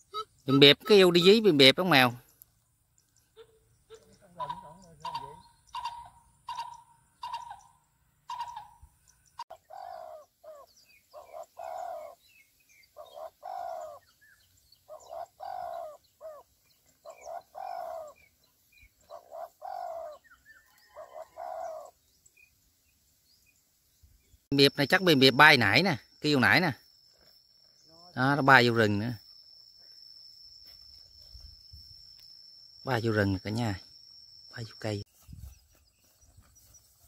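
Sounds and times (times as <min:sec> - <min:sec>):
bird hooting: 0:03.3 - 0:22.0.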